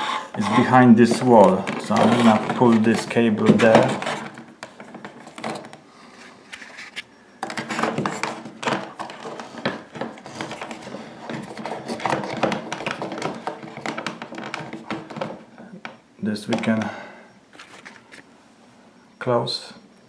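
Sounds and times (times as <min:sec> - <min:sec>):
plastic fittings clicking and knocking: 0:07.4 - 0:16.7.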